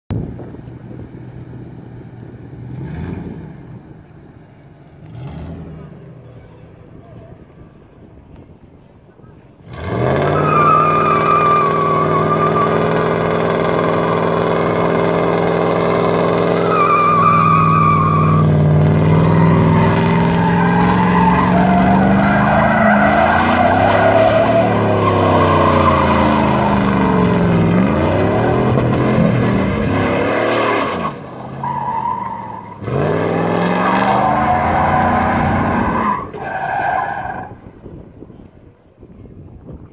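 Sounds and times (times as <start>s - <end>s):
truck engine revving hard: 2.6s - 3.9s, 5.0s - 6.2s, 9.6s - 37.5s
tyre squeal: 16.5s - 28.6s, 30.6s - 32.9s.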